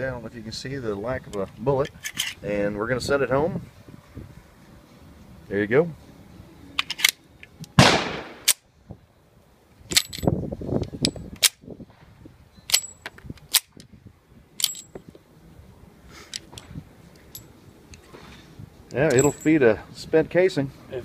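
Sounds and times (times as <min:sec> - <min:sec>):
pistol slide racking: 0:01.8 - 0:02.4, 0:06.8 - 0:07.8.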